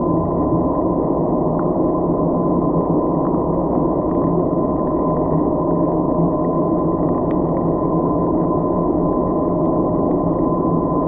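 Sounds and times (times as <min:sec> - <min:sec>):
constant hum: 0:00.0 - 0:11.0
faint ticks: 0:05.3 - 0:07.6.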